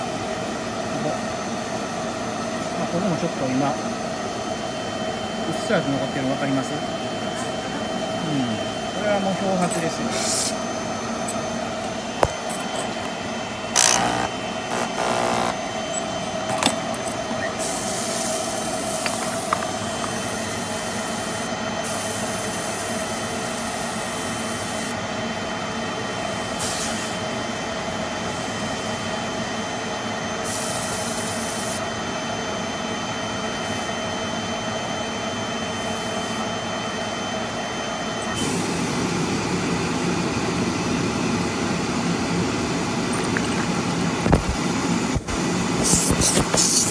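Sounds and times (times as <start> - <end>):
motor humming with high whine: 0.0 - 46.9
tools knocking and clicking: 16.5 - 17.2.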